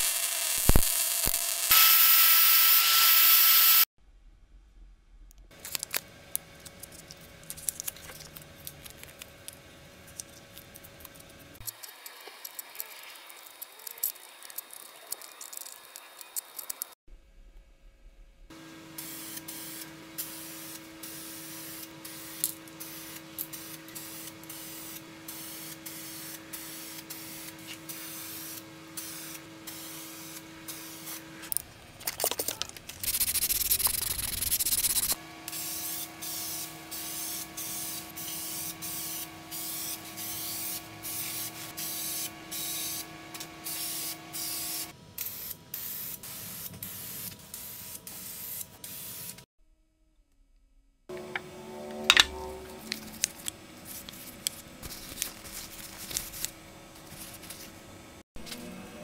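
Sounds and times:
spray paint can hissing: 19.0s - 31.2s, 32.9s - 49.4s.

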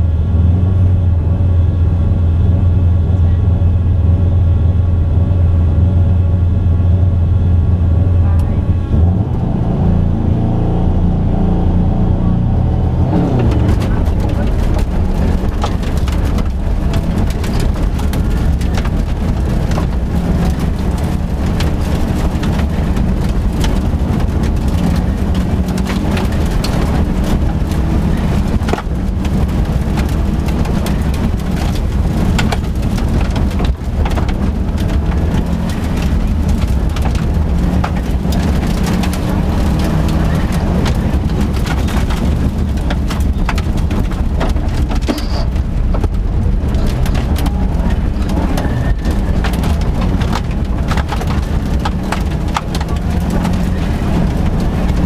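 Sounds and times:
rally car engine revving hard: 5.1s - 55.0s
stones rattling against car underside: 13.3s - 55.0s.

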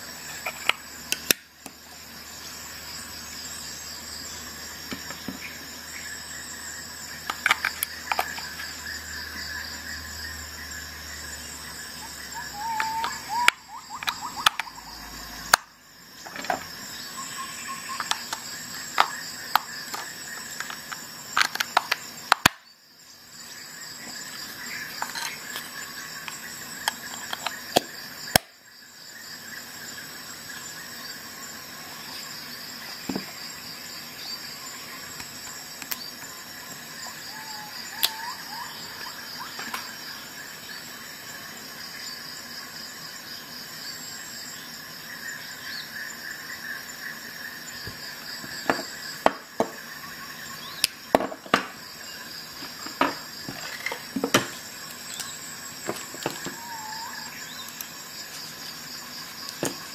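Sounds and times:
high-pitched background chirring: 5.0s - 15.9s.

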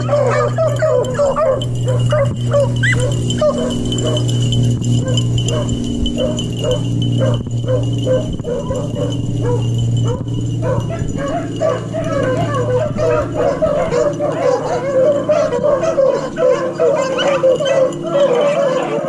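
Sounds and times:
steady low hum: 0.0s - 18.3s
dogs baying: 0.0s - 19.0s.

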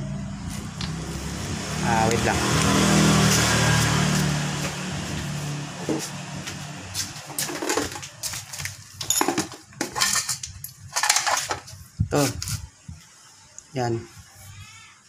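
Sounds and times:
vehicle engine hum: 0.0s - 9.0s.

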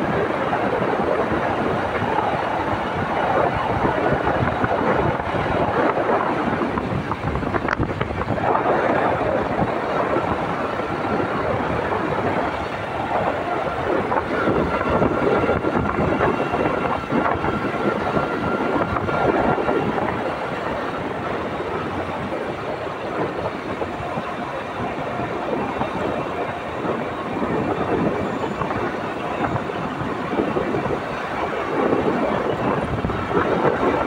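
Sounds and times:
motorcycle road noise: 0.0s - 34.0s
wind rush: 0.0s - 34.0s.

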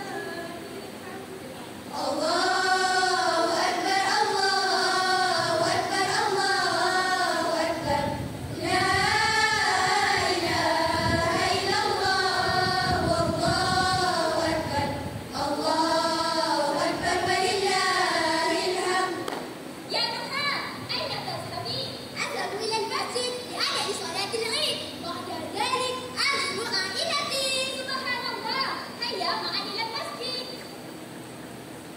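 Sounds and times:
girls speaking in unison: 19.9s - 30.6s.

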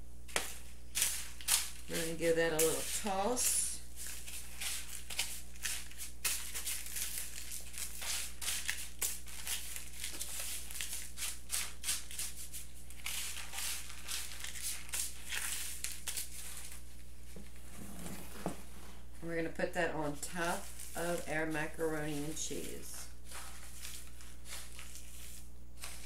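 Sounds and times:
spatula scraping breadcrumbs: 0.3s - 16.8s, 20.1s - 26.0s.

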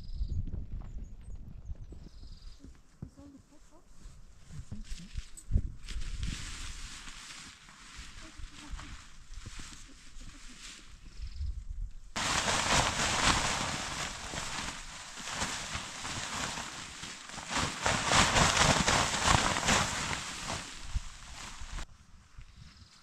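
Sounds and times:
tent flysheet rustling: 4.0s - 11.0s, 12.2s - 21.9s.

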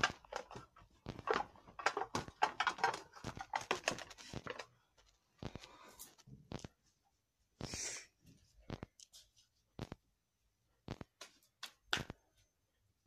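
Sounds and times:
cards clicking and tapping: 10.9s - 12.2s.

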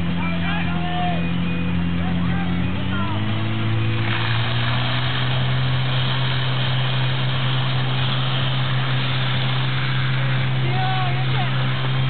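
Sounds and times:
pump engine running at high revs: 0.0s - 12.0s
hiss of water jets: 4.0s - 12.0s.

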